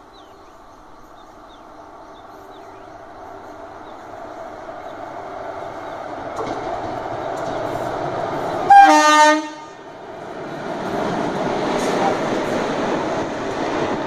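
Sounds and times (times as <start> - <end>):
train rolling noise: 0.0 - 14.0
train horn blast: 8.7 - 9.9.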